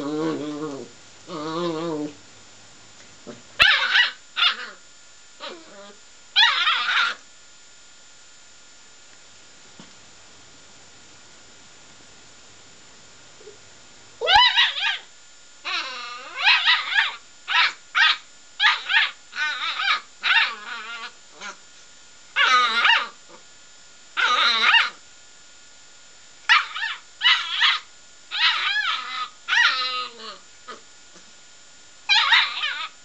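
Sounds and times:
puppy yapping: 0:03.6 - 0:04.8, 0:06.4 - 0:07.2, 0:14.2 - 0:15.1, 0:15.7 - 0:21.6, 0:22.4 - 0:23.2, 0:24.2 - 0:25.0, 0:26.5 - 0:30.8, 0:32.1 - 0:33.0.

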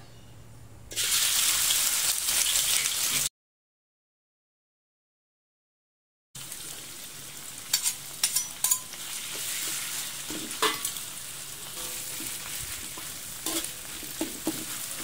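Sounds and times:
paste sizzling in hot oil: 0:00.9 - 0:03.3, 0:06.4 - 0:15.0
metal spatula scraping a pan: 0:07.7 - 0:11.0, 0:11.6 - 0:15.0.

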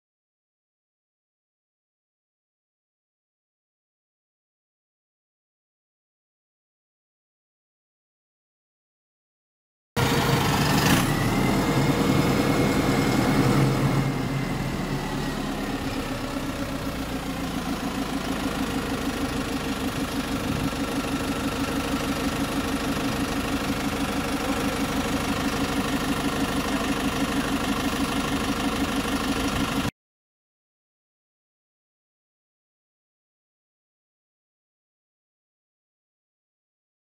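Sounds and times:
bus engine starting and idling: 0:10.0 - 0:29.9.

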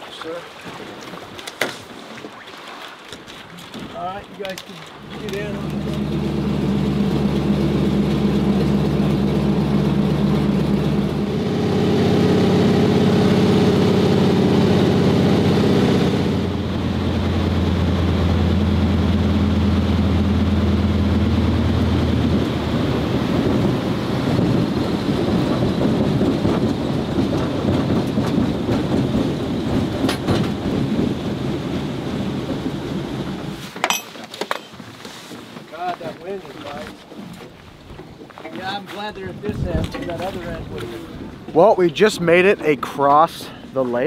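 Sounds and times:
plane engine and propeller drone: 0:04.9 - 0:34.0.

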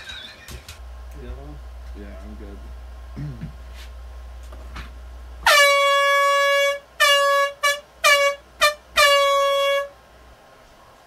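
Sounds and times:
air horn blasts: 0:05.4 - 0:10.0.

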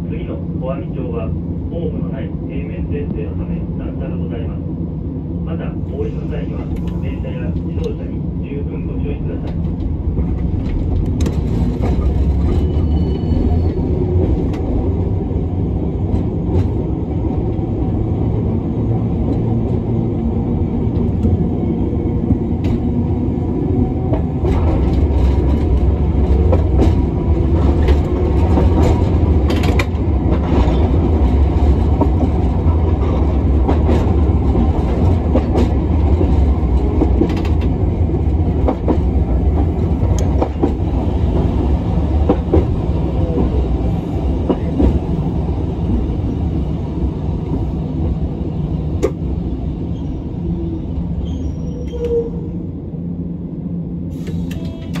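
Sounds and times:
tram rumbling: 0:00.0 - 0:55.0
rail joint clicks: 0:06.0 - 0:08.1, 0:09.2 - 0:15.1, 0:20.8 - 0:21.6, 0:22.2 - 0:23.1, 0:23.8 - 0:43.6, 0:44.4 - 0:45.2, 0:48.9 - 0:49.3, 0:51.2 - 0:52.4, 0:54.1 - 0:55.0.

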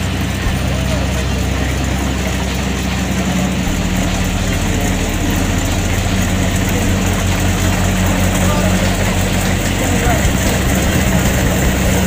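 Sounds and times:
diesel engine running steadily: 0:00.0 - 0:12.0.

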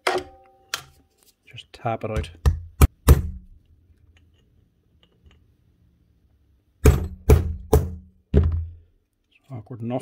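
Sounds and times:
hammer striking metal punch: 0:06.8 - 0:08.1.

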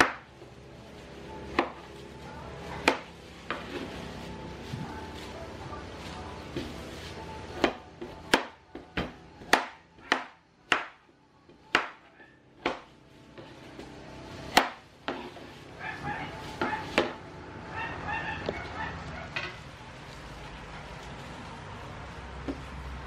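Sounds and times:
cleaver chopping on wooden board: 0:14.5 - 0:15.2.

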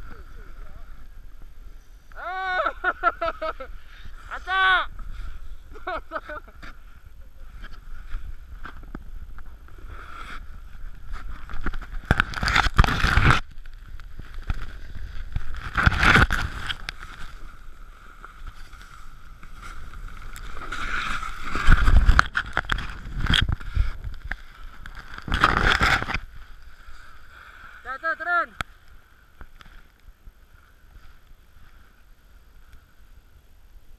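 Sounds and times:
snowboard scraping over snow: 0:02.7 - 0:27.7.

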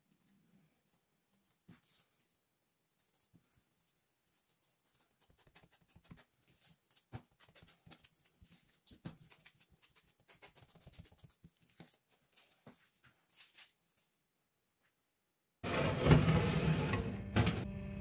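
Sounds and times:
hands patting dough on a board: 0:04.9 - 0:12.0.

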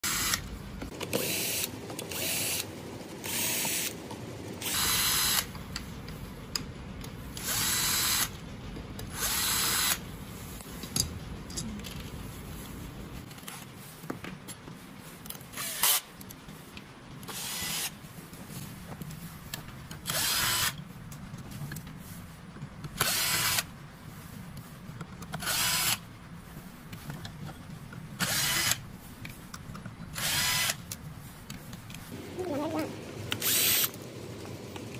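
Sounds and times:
cordless drill running: 0:00.0 - 0:00.4, 0:01.2 - 0:03.9, 0:04.6 - 0:05.5, 0:07.4 - 0:08.3, 0:09.1 - 0:10.0, 0:15.6 - 0:16.0, 0:17.3 - 0:17.9, 0:20.0 - 0:20.8, 0:23.0 - 0:23.7, 0:25.4 - 0:26.0, 0:28.2 - 0:28.8, 0:30.1 - 0:30.8, 0:33.4 - 0:34.0.

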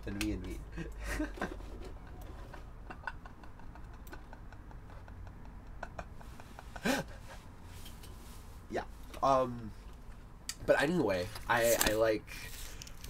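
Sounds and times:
light clicks and ticks: 0:00.0 - 0:01.0.

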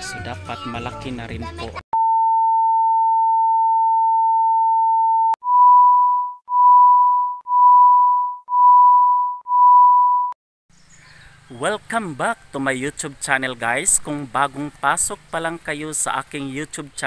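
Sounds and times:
short electronic beeps: 0:02.0 - 0:10.4
steady electronic test tone: 0:02.0 - 0:10.4.

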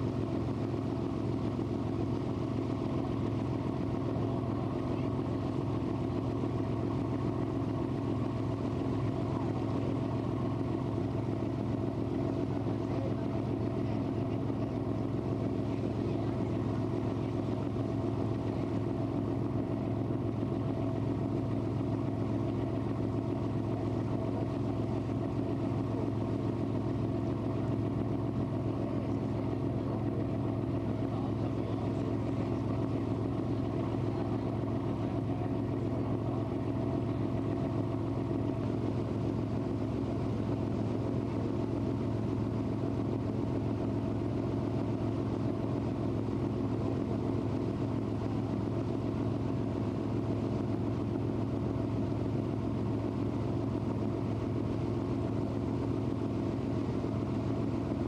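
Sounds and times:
boat engine droning: 0:00.0 - 0:58.0.

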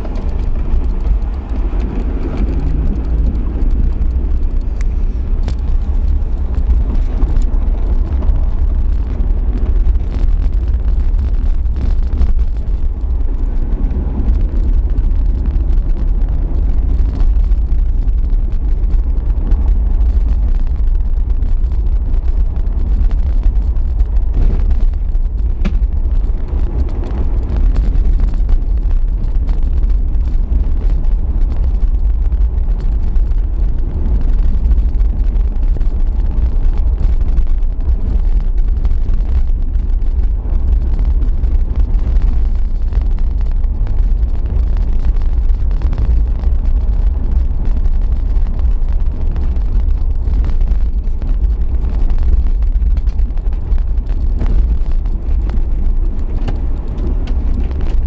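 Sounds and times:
engine and tyres rumbling: 0:00.0 - 0:58.0
knocks over bumps: 0:24.1 - 0:29.8.

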